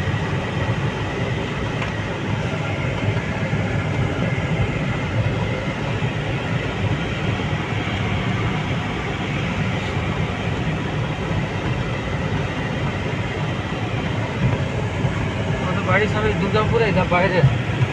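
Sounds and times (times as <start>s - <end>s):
vehicle engine and road rumble: 0.0s - 17.9s.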